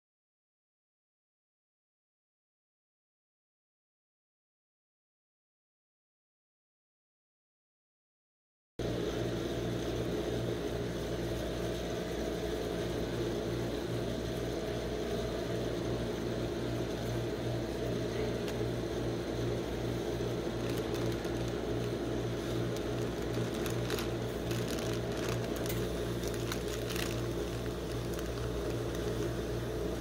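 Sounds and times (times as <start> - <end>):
refrigeration unit humming: 8.8 - 30.0.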